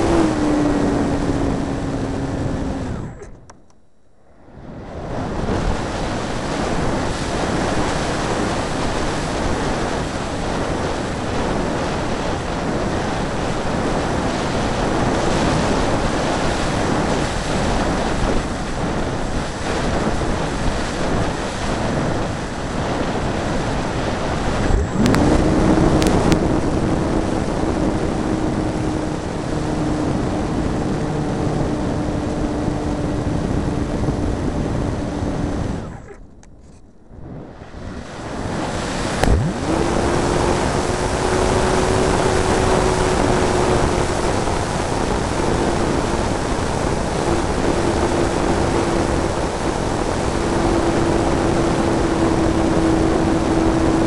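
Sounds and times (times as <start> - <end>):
electric motor whine: 0.0 - 3.6, 22.7 - 36.2, 38.5 - 54.0.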